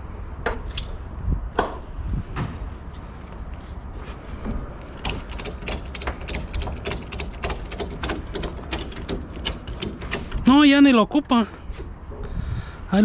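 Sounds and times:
ratchet strap clicking: 4.8 - 10.6.

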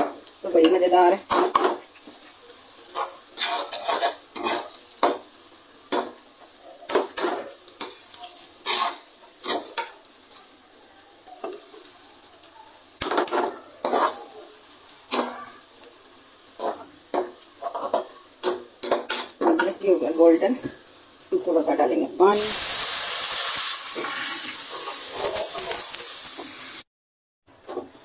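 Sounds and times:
oil sizzling: 0.0 - 26.9, 27.5 - 28.0
steel spoon scraping pan: 2.9 - 4.8, 7.2 - 10.0, 13.2 - 14.3.

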